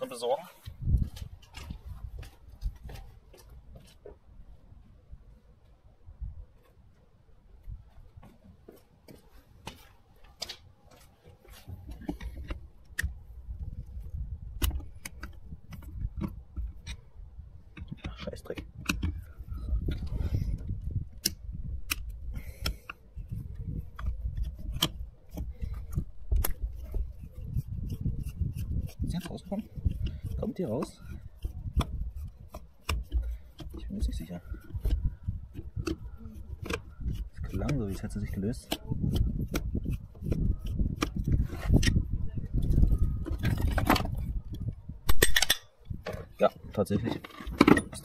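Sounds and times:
screwdriver clicking and scraping metal: 0:11.8 - 0:17.1, 0:17.7 - 0:48.0
metal part being handled: 0:45.1 - 0:46.3.

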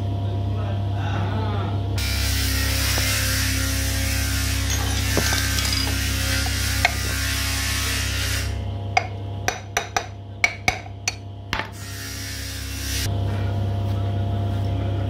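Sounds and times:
metal tools tapping metal: 0:04.4 - 0:07.4, 0:09.0 - 0:11.8.

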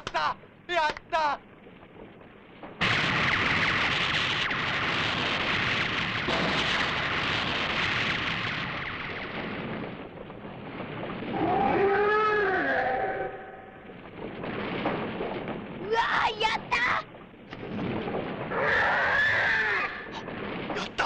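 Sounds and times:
monster roar: 0:11.3 - 0:13.4, 0:18.5 - 0:20.2.

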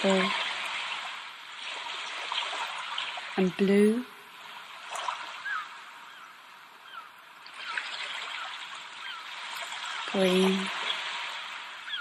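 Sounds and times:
trickling water: 0:00.0 - 0:12.0
bird chirps: 0:05.4 - 0:11.0.

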